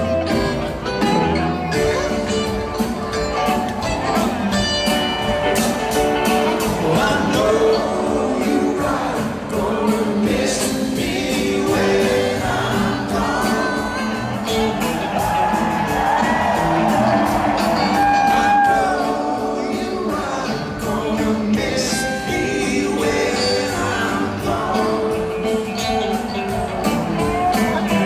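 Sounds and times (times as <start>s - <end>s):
crowd noise: 0.0s - 28.0s
live rock band playing: 0.0s - 28.0s
person singing: 6.2s - 15.3s, 17.6s - 28.0s.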